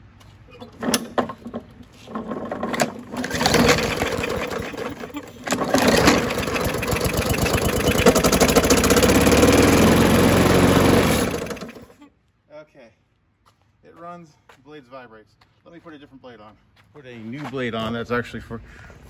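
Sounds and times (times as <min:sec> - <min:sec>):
mower shaking: 0:00.7 - 0:11.9
lawn mower engine running: 0:00.7 - 0:12.0.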